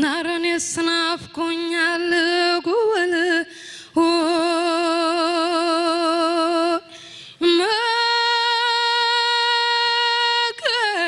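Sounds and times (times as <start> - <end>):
woman singing unaccompanied: 0.0 - 11.0
quick breath: 3.5 - 4.0, 6.9 - 7.4.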